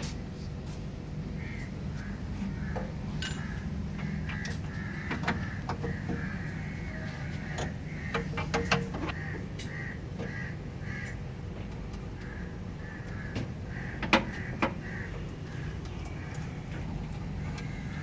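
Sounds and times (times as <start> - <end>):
steady low hum: 0.0 - 18.0
birds cawing: 1.2 - 18.0
sharp clicks and knocks: 7.6 - 10.3, 13.0 - 14.9.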